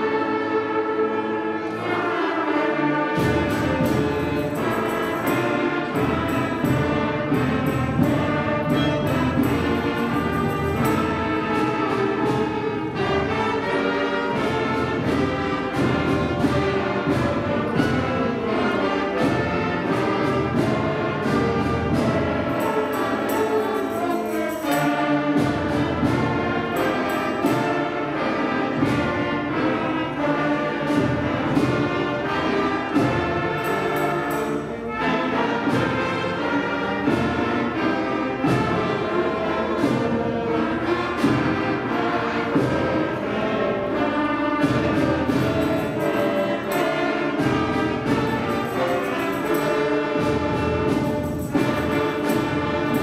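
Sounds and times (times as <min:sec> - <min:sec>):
brass instruments: 0:00.0 - 0:53.0
percussion steady beat: 0:00.0 - 0:53.0
concert band playing: 0:01.0 - 0:53.0.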